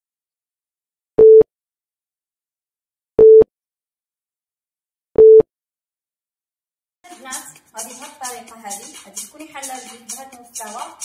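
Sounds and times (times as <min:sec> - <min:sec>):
short electronic beeps: 0:03.2 - 0:03.4, 0:05.2 - 0:05.4.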